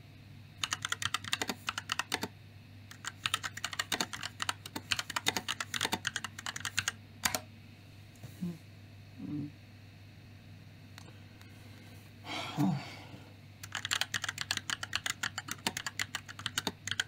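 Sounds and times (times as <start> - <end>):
laptop keyboard typing: 0.6 - 2.3, 2.9 - 7.4, 13.6 - 17.0.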